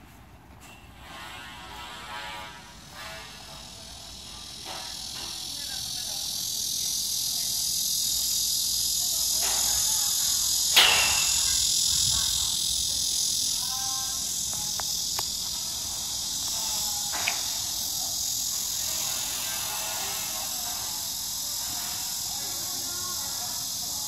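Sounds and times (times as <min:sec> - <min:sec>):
cicadas singing: 0:01.2 - 0:24.0
sharp click: 0:10.7 - 0:11.8.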